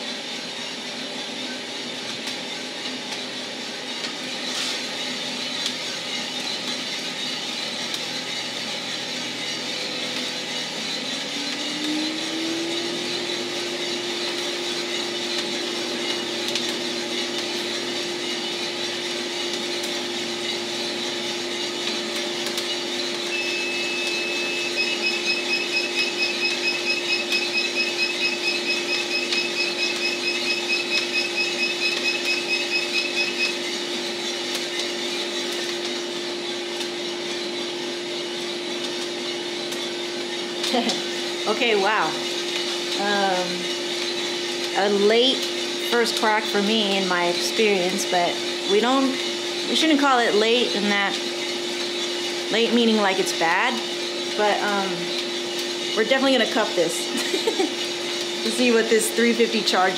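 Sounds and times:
coffee roaster humming: 0:00.0 - 0:59.9
rapid high-pitched beeping: 0:23.3 - 0:33.6.

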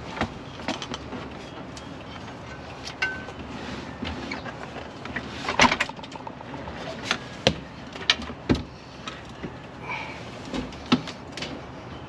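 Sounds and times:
knocks and clunks of truck seat: 0:07.0 - 0:08.8, 0:10.5 - 0:11.7.

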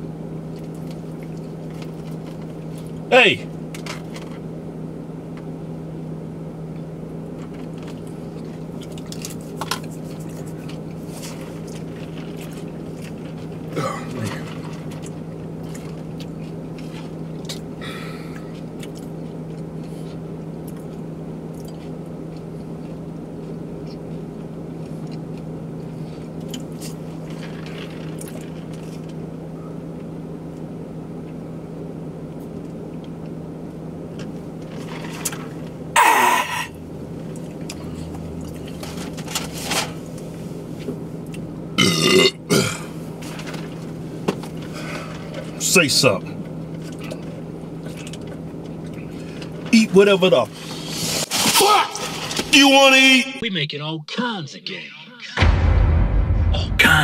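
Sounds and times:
car cabin engine hum: 0:00.0 - 0:41.8, 0:42.4 - 0:51.0, 0:56.4 - 0:57.0.

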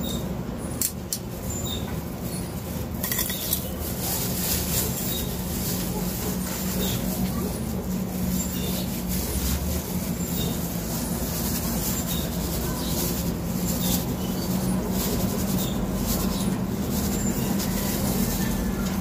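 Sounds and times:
low mechanical hum: 0:00.0 - 0:19.0.

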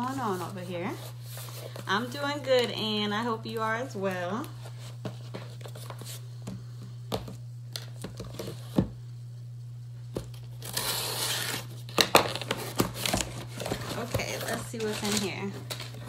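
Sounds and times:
paper packaging tearing and crinkling: 0:10.4 - 0:16.0
scissors snipping paper package: 0:10.4 - 0:16.0.

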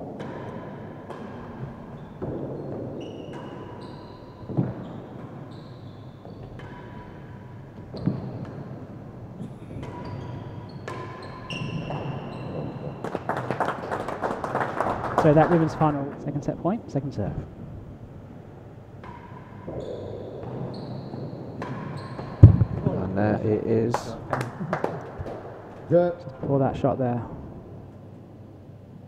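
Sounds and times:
ball struck by rackets: 0:00.0 - 0:05.3, 0:06.4 - 0:13.3, 0:19.0 - 0:23.0
spectators clapping: 0:12.5 - 0:16.2, 0:23.9 - 0:25.8.

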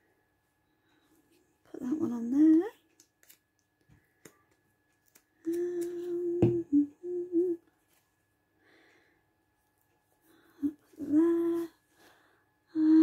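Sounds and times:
woman humming: 0:05.4 - 0:07.7, 0:10.6 - 0:11.8, 0:12.7 - 0:13.0.

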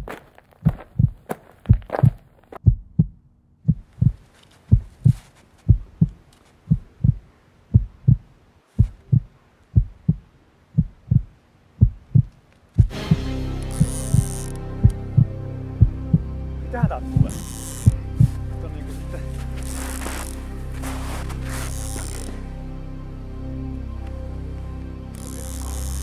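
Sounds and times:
heartbeat thumps: 0:00.0 - 0:18.5.

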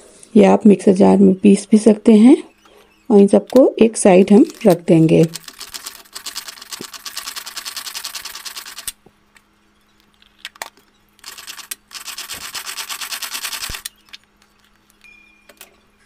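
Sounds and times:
string food chopper ratchet clicking: 0:05.4 - 0:09.0, 0:11.2 - 0:13.9.

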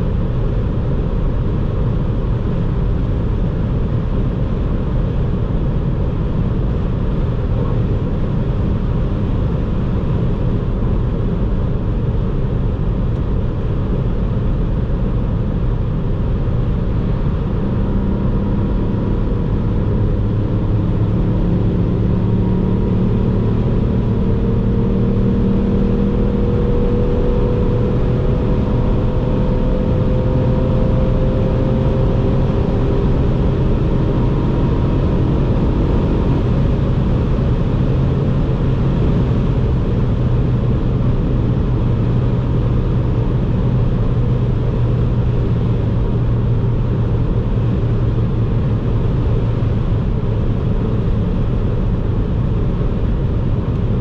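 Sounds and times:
car engine from inside cabin: 0:00.0 - 0:54.0
road noise: 0:00.0 - 0:54.0.

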